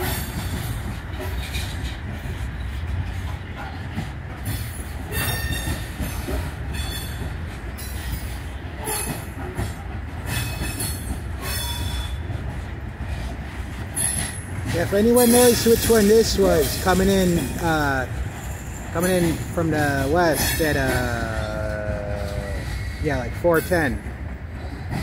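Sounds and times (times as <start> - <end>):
train wheels rumbling on rail: 0.0 - 25.0
high-pitched wheel squeals: 10.3 - 12.3, 22.2 - 23.6
wheelsets clanking: 13.0 - 24.0.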